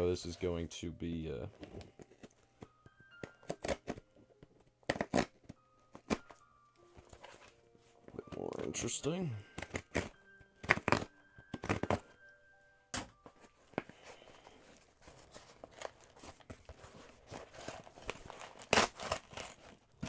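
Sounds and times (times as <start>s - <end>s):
packaging tearing and rustling: 14.7s - 20.0s.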